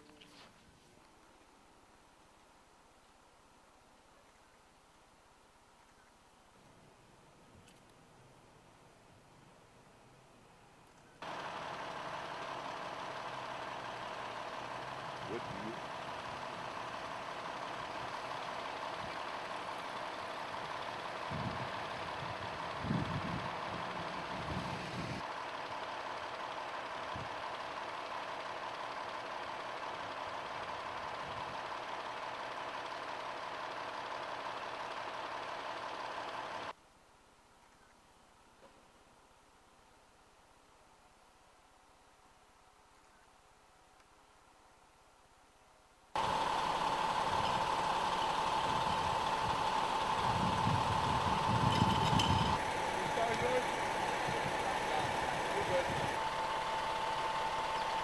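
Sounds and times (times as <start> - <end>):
fire engine idling: 11.2 - 36.8, 46.2 - 58.0.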